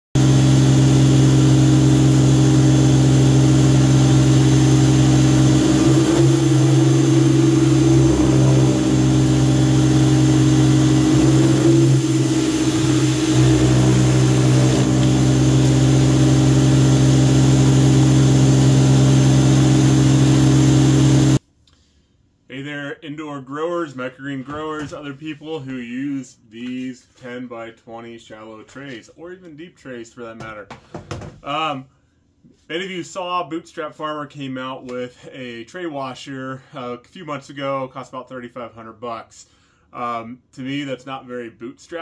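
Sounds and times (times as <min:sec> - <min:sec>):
pressure washer motor humming: 0:00.2 - 0:21.4.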